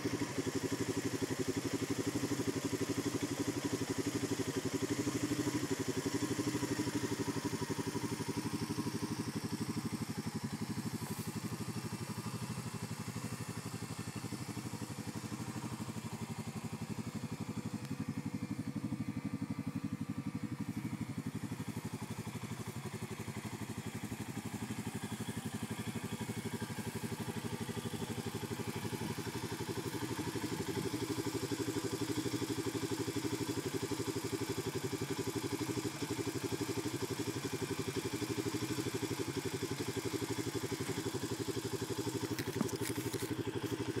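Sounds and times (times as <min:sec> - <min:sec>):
atv engine running: 0:00.0 - 0:44.0.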